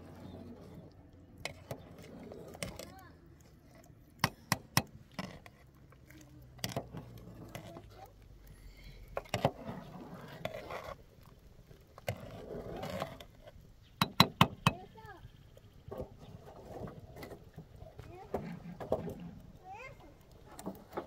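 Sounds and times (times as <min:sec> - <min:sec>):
metal ladle scraping pot: 0:00.0 - 0:08.2.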